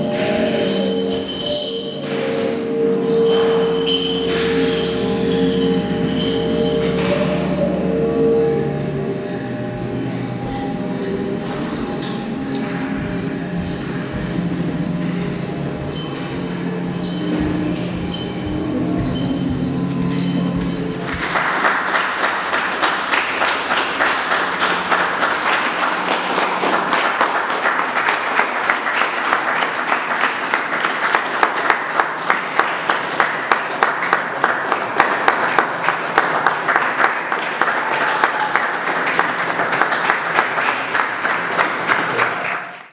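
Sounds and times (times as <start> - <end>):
close hands clapping: 21.1 - 42.9
small audience applauding: 21.1 - 42.9.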